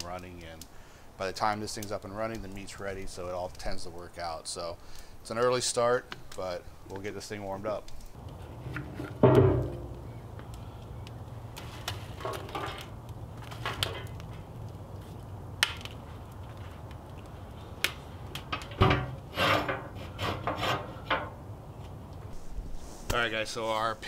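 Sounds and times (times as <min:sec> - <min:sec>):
fire crackling and popping: 0:00.0 - 0:24.0
metal door knocks and scraping: 0:08.7 - 0:10.0, 0:18.6 - 0:21.4
heavy thump: 0:09.2 - 0:10.0.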